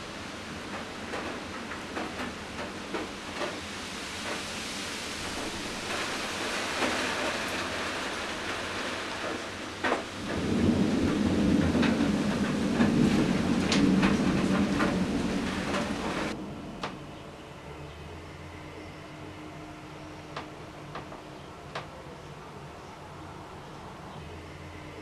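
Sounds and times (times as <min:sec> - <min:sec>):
steady hiss: 0:00.0 - 0:21.2.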